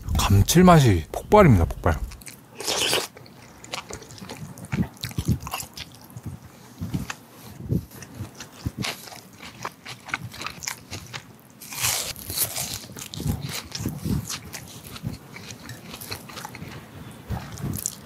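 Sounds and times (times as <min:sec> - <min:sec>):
soft chewing: 0:02.0 - 0:18.0
crisp crunch of fried food: 0:08.3 - 0:16.7.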